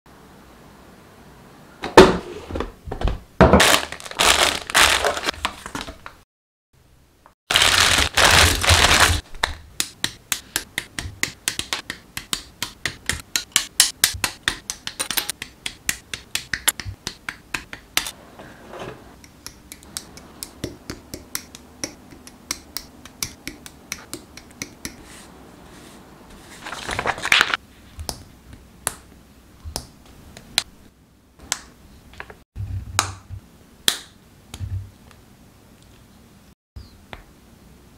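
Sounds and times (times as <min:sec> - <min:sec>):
plastic packaging crinkling: 0:03.6 - 0:06.2, 0:07.5 - 0:09.4, 0:26.6 - 0:27.6.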